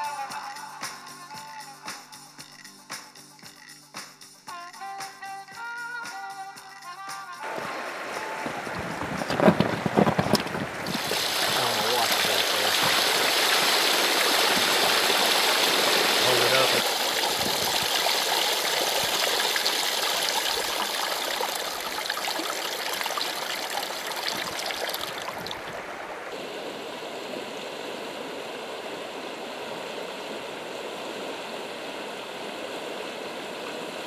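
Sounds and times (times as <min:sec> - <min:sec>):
water splashing over rocks: 0:07.4 - 0:26.4
water pouring into shallows: 0:10.3 - 0:26.3.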